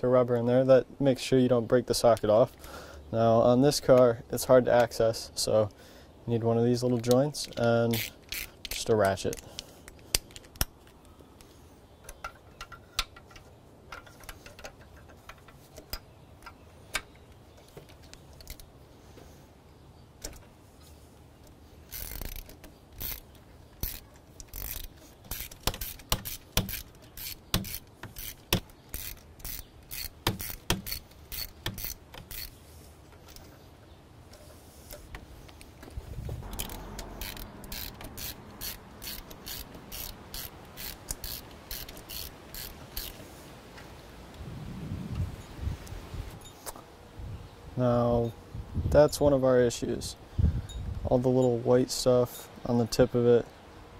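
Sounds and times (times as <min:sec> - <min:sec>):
hand ratchet clicking: 0:07.0 - 0:10.7, 0:21.8 - 0:32.6, 0:36.4 - 0:43.2.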